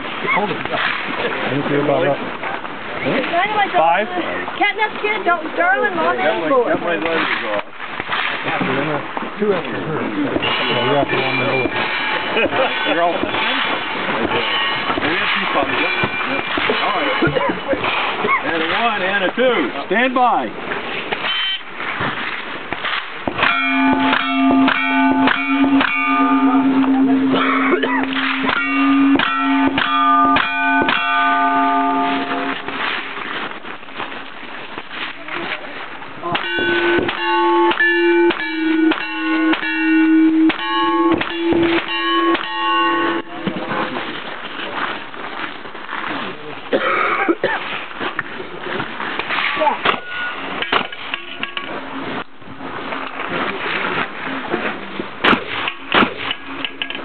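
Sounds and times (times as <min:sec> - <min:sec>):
steel plates ringing: 0:10.4 - 0:19.1, 0:21.2 - 0:21.7, 0:23.3 - 0:33.0, 0:36.2 - 0:43.6, 0:49.3 - 0:52.5, 0:55.6 - 0:57.0.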